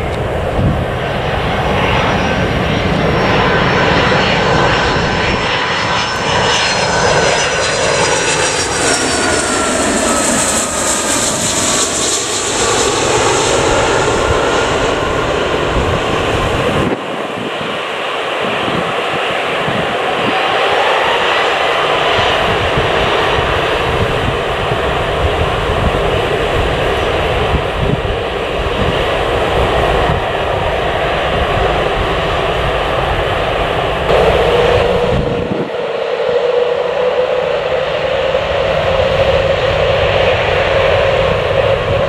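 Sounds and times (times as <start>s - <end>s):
jet engines roaring: 0.0s - 42.0s
rising engine whine: 0.0s - 42.0s.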